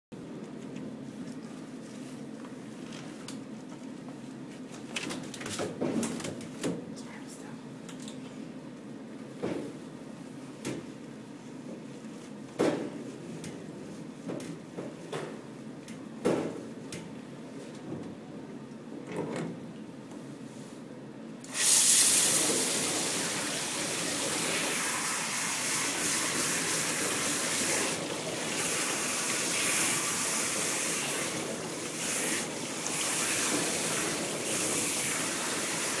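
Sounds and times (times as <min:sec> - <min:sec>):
shower sprayer water hissing: 0:21.5 - 0:36.0.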